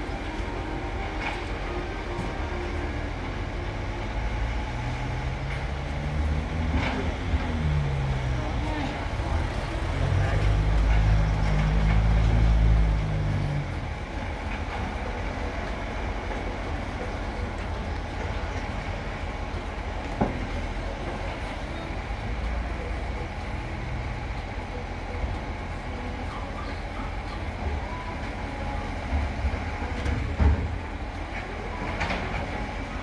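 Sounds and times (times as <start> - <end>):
truck engine rumbling: 0.0 - 33.0.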